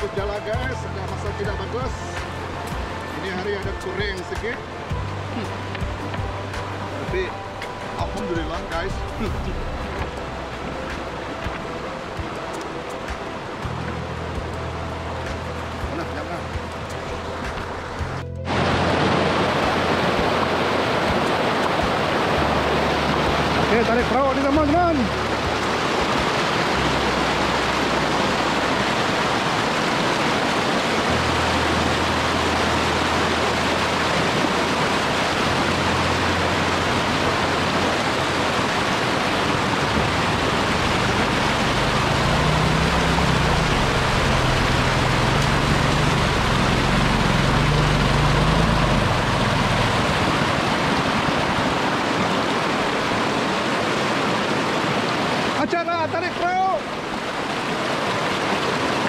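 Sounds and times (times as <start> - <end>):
river rapids rushing over rocks: 0.0 - 59.0
low wavering rumble: 31.1 - 51.7.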